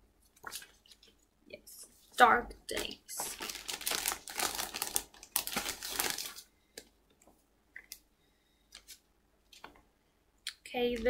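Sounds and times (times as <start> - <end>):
comic books rustling and crinkling: 0.2 - 1.2, 2.0 - 8.0.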